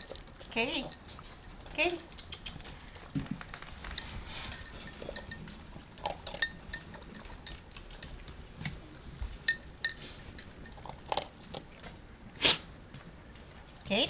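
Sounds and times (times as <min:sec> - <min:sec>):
ceramic bowl clinking: 0:00.0 - 0:00.2, 0:00.8 - 0:08.4, 0:09.2 - 0:12.0
dog eating wet mouth sounds: 0:00.0 - 0:14.0.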